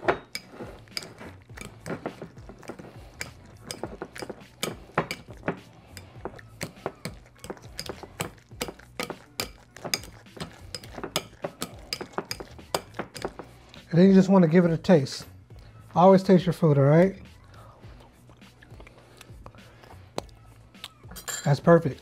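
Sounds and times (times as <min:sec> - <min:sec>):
whisk clinking against glass bowl: 0:00.1 - 0:02.3, 0:03.1 - 0:05.3, 0:06.0 - 0:13.4.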